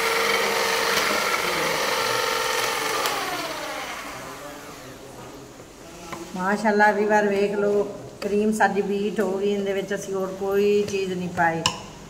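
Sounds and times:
electric hand mixer whirring: 0.0 - 4.8.

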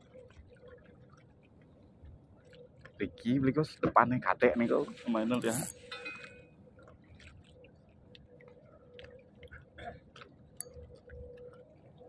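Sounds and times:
quiet steady hum: 0.0 - 12.0
small clicks and ticks: 5.4 - 12.0.

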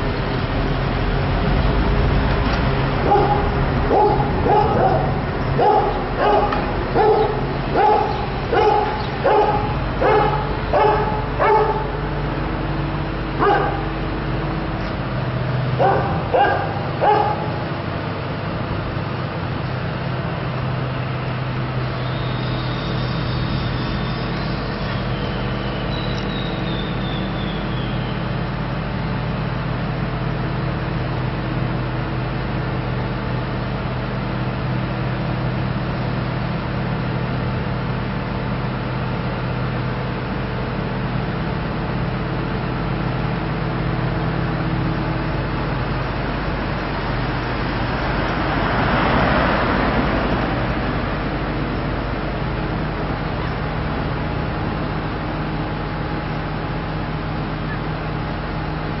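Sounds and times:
low engine hum: 0.0 - 59.0
dog barking: 3.0 - 12.1, 13.4 - 14.0, 15.8 - 17.6.

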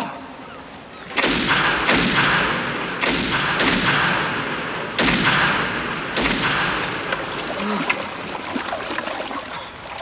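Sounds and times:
loud water splashes: 6.2 - 10.0.

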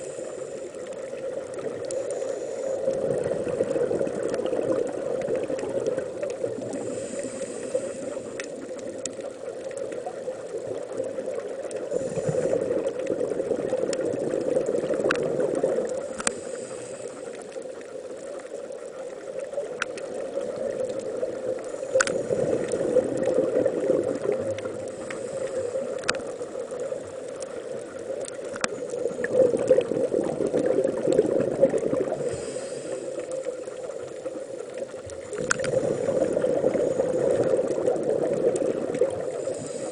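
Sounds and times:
exhaled bubbles: 0.0 - 39.9
muffled underwater rushing: 0.0 - 39.9
regulator breathing: 6.7 - 8.7, 16.0 - 17.6, 32.2 - 33.4, 39.3 - 39.9.

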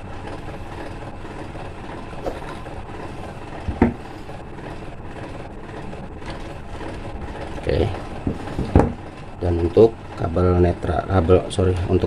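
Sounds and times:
wires being twisted by hand: 0.2 - 9.4.

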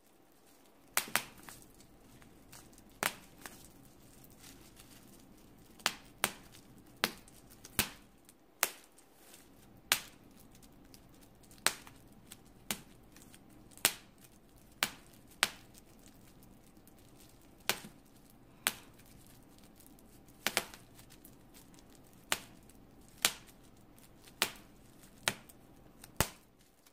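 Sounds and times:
bubble wrap popping: 0.0 - 26.9.

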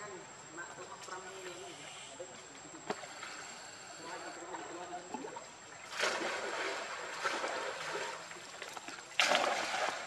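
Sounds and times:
monkey splashing through water: 5.8 - 10.0.

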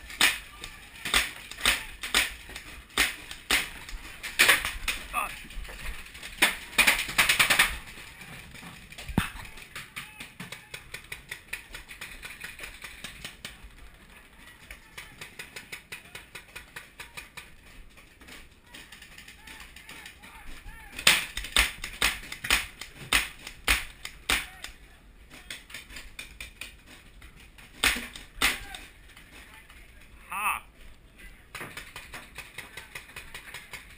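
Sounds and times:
paintball marker shots: 21.0 - 24.8, 27.7 - 28.8.

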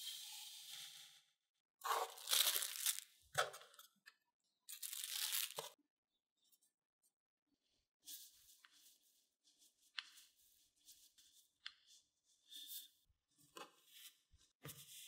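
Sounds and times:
cling film crinkling: 2.1 - 3.0, 4.7 - 5.8.

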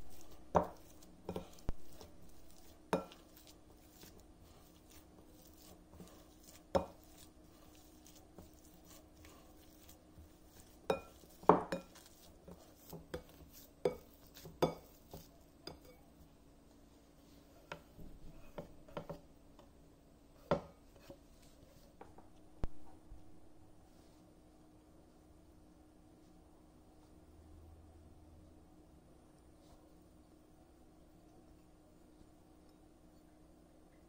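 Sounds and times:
potato masher mashing potatoes: 0.0 - 16.3.

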